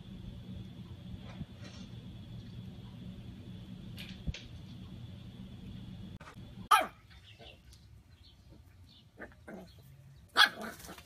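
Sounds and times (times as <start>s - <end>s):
puppy barking: 6.7s - 7.0s, 10.3s - 11.0s.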